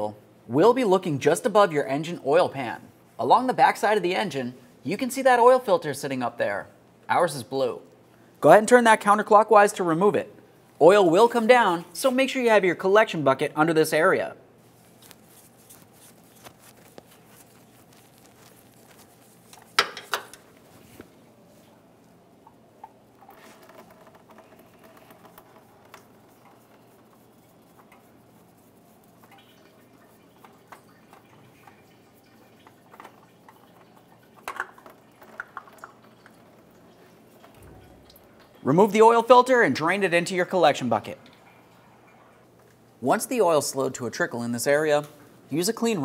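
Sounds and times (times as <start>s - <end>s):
oil filter being unscrewed: 14.7s - 21.1s, 22.4s - 38.6s.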